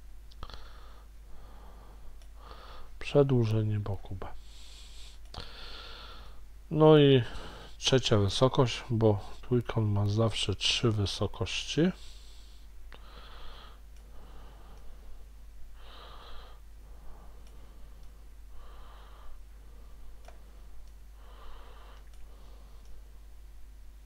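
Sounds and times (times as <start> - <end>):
man breathing: 0.4 - 3.0, 4.4 - 6.5, 7.2 - 7.8, 12.0 - 23.1
faint clicks: 2.2 - 2.4, 13.9 - 14.1, 21.9 - 23.0.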